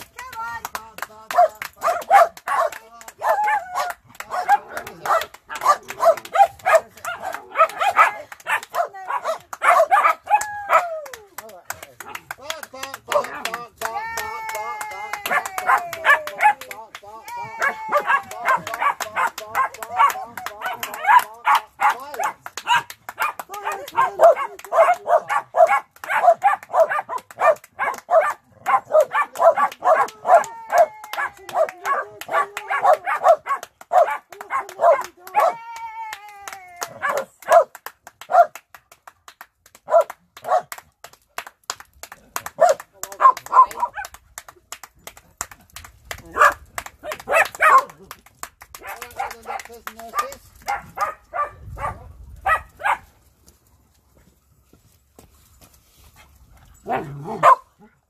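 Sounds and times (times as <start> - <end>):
hands clapping: 0.0 - 52.7
dogs barking: 1.3 - 10.9, 17.6 - 35.6, 37.0 - 38.6, 39.9 - 40.7, 42.6 - 44.1, 46.3 - 48.0, 48.8 - 53.1, 56.9 - 57.9.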